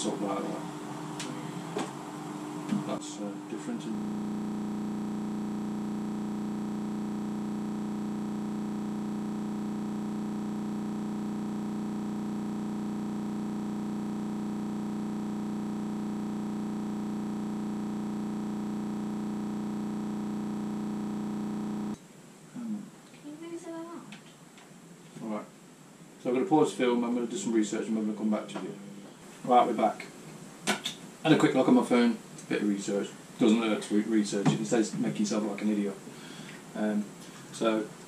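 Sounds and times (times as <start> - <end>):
synthesizer chord drone: 0.0 - 22.0.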